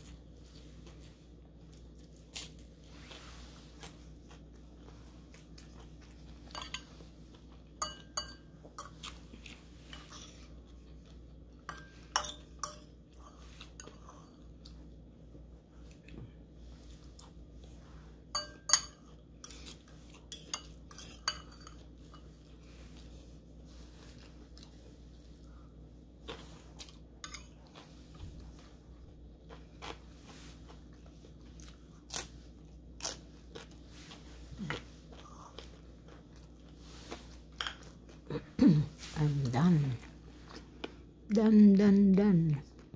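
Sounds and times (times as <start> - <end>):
fork clinking against ceramic bowl: 7.8 - 8.9, 11.7 - 12.9, 18.3 - 19.6, 20.3 - 22.2
crunchy chewing: 29.4 - 38.3.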